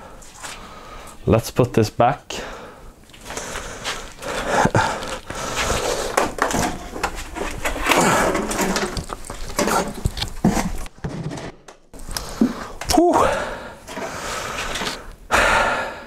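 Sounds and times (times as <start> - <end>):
cardboard rustling: 5.1 - 12.5.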